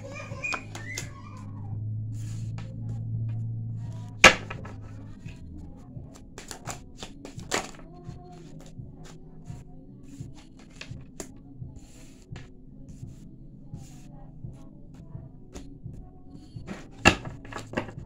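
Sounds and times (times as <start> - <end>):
card snap: 4.2 - 4.9, 6.4 - 7.8
cards being shuffled: 4.2 - 5.1, 6.4 - 7.8, 16.7 - 18.0.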